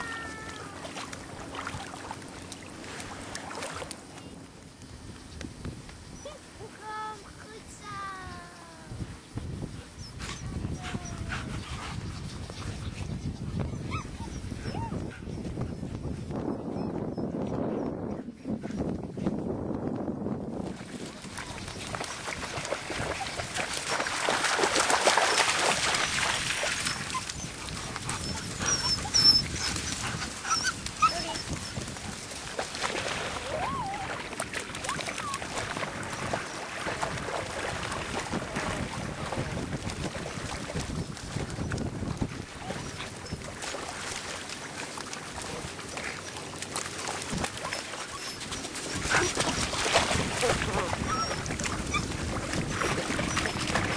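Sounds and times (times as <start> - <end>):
water at shore edge: 0.0 - 53.9
wind on microphone: 4.8 - 53.9
puppies squeaking and whimpering: 13.7 - 15.0, 28.2 - 31.8, 47.6 - 49.6, 51.0 - 53.9.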